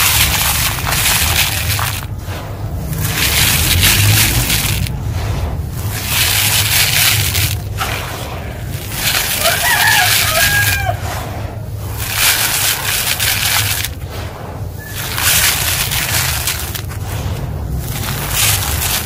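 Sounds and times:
grit shaken through plastic sieve: 0.0s - 19.0s
rooster crowing: 9.2s - 11.1s.

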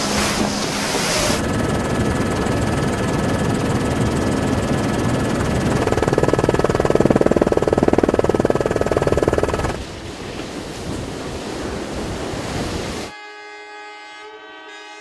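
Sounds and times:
wind: 0.0s - 14.7s
helicopter rotor noise: 0.9s - 9.8s
ship's horn chord: 13.1s - 15.0s.

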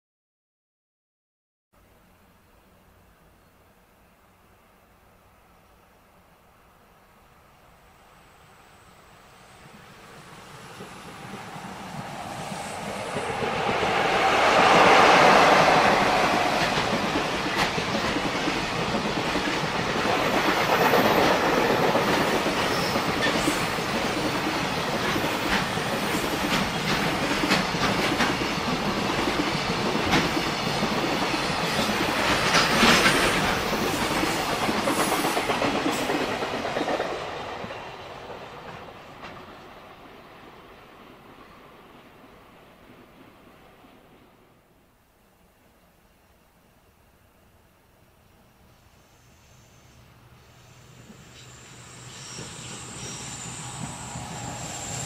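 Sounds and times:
electric locomotive passing: 6.6s - 44.8s, 47.4s - 55.0s
train wheels clacking over rail joints: 12.8s - 39.6s.

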